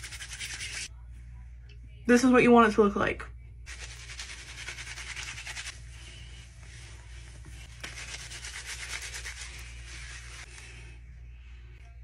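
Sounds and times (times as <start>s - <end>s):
hands scrubbing lather in hair: 3.7s - 5.9s, 6.6s - 10.8s.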